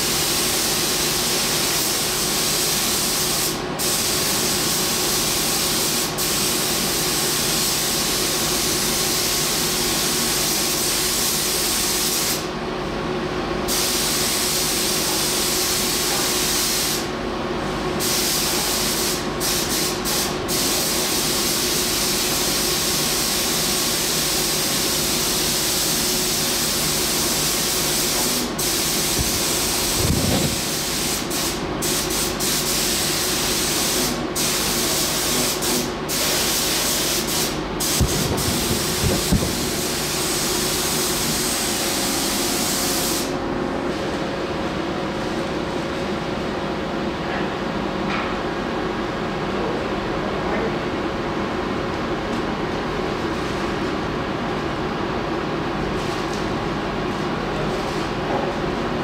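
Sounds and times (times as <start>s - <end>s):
paint spray gun hissing: 0.0s - 12.5s, 13.7s - 17.1s, 18.0s - 43.4s.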